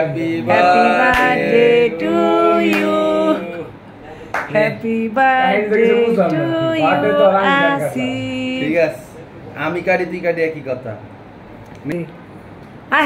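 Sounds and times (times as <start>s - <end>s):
people singing together: 0.0s - 3.8s, 4.4s - 8.8s.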